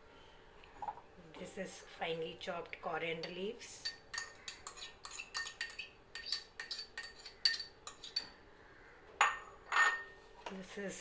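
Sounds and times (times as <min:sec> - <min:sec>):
spoon clinking on ceramic bowl: 0:03.2 - 0:08.4, 0:09.2 - 0:10.2.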